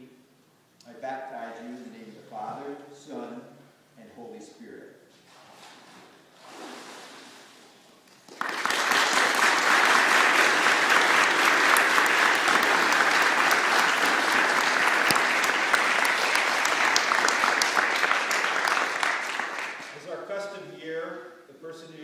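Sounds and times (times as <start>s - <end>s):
crowd applauding: 8.1s - 20.2s.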